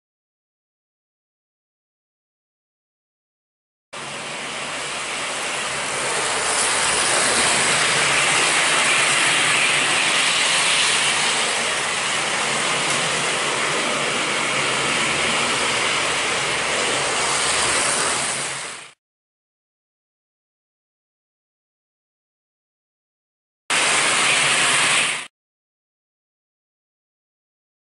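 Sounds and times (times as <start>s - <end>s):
model train running on track: 4.0s - 19.0s, 23.7s - 25.2s.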